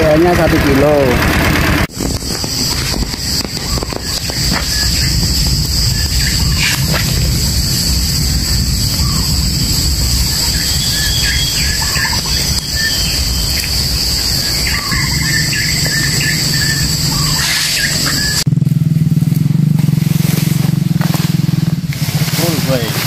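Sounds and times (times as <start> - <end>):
low motor hum: 0.0 - 23.0
low rumble: 0.0 - 23.0
high insect drone: 1.9 - 23.0
birds chirping: 2.0 - 18.5.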